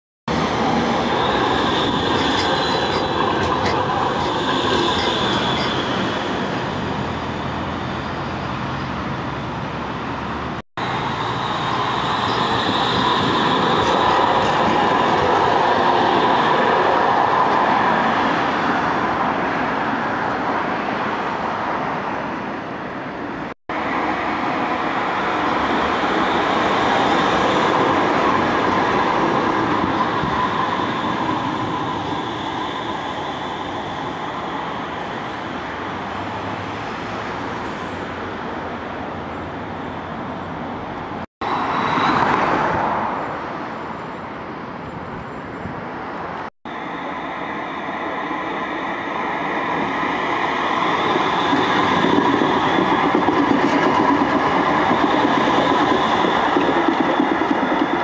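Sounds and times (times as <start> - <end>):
tram rumbling on rails: 0.3 - 58.0
high wheel squeal: 0.4 - 8.9, 10.8 - 16.8, 26.2 - 38.1, 41.4 - 45.8.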